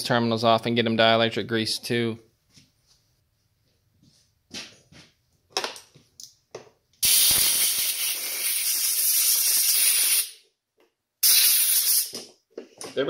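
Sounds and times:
aerosol spray hissing: 0:07.0 - 0:10.3, 0:11.2 - 0:12.2.

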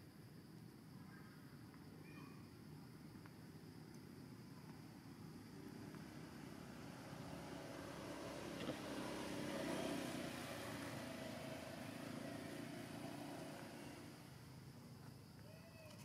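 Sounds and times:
vehicle engine passing: 0:05.1 - 0:14.8.

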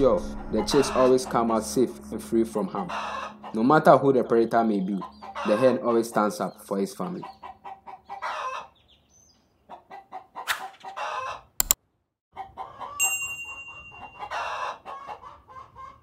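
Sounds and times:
bell-like ding: 0:00.0 - 0:06.0, 0:13.0 - 0:14.6
chickens clucking and squawking: 0:00.0 - 0:11.6, 0:12.4 - 0:13.0, 0:13.9 - 0:16.0.

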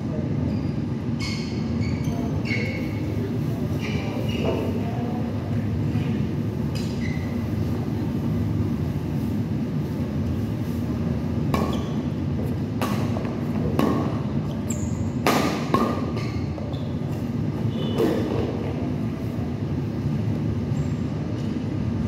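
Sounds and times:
brief high squeak: 0:00.5 - 0:03.0, 0:06.8 - 0:07.4
rackets smacking shuttlecock: 0:11.4 - 0:16.5.

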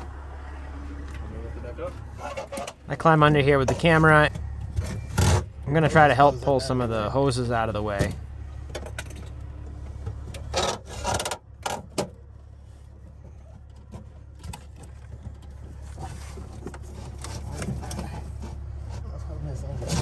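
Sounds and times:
hoses and cord rubbing: 0:10.2 - 0:20.0.

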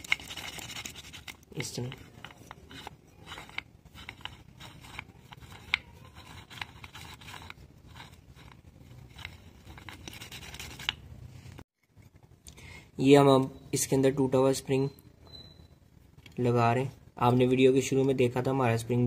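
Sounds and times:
metallic scrapes and clicks: 0:00.0 - 0:11.0.

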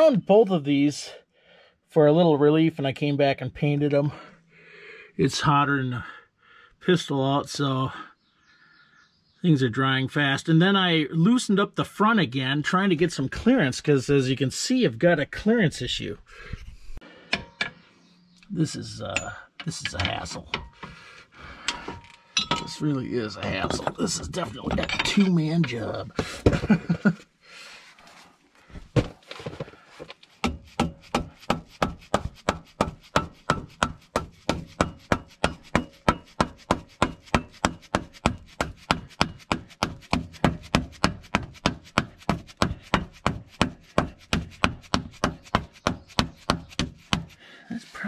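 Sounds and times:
hammer striking steel plate: 0:32.4 - 0:40.0.

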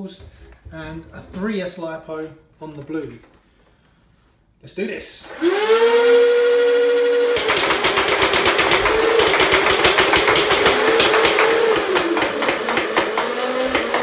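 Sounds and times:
flywheel motors whining: 0:05.3 - 0:14.0
foam balls firing in rapid clatter: 0:07.4 - 0:14.0.

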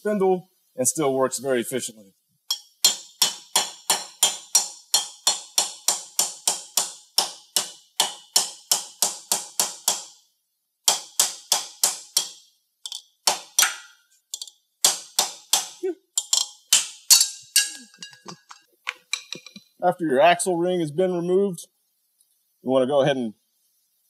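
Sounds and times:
hammer tapping on steel: 0:02.5 - 0:10.1, 0:10.9 - 0:19.6.

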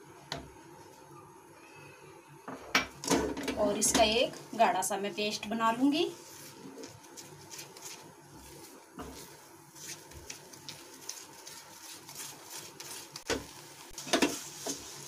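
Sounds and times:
spatula scraping pan: 0:14.0 - 0:15.0.

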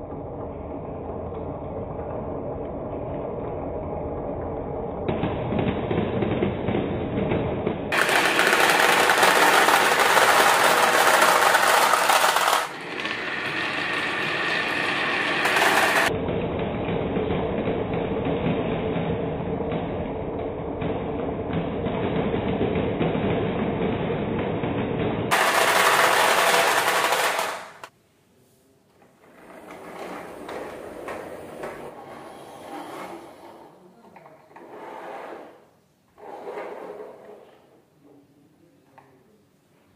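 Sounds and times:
marbles clattering into plastic trucks: 0:07.9 - 0:16.1, 0:25.3 - 0:27.9
marbles rattling on wooden tracks: 0:07.9 - 0:16.1, 0:25.3 - 0:27.9.

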